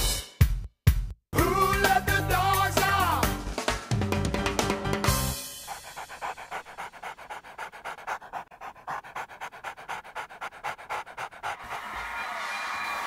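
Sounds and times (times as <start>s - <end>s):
dog panting: 5.1s - 12.2s.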